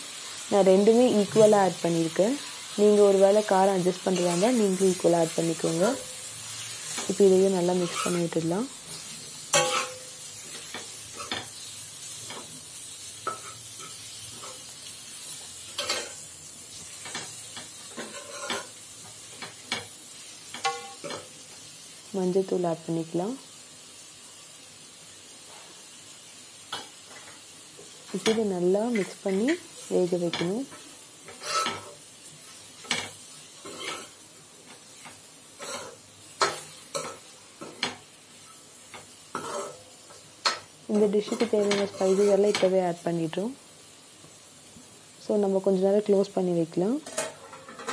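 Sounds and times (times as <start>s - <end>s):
food sizzling in oil: 0.0s - 47.9s
metal spoon scraping a pan: 5.4s - 21.4s, 28.1s - 32.0s, 32.6s - 42.8s, 47.0s - 47.9s
spoon scraping metal pan: 7.8s - 8.3s, 9.0s - 11.6s, 17.9s - 18.7s, 30.3s - 32.0s, 32.8s - 34.2s, 39.3s - 39.8s, 40.4s - 42.7s.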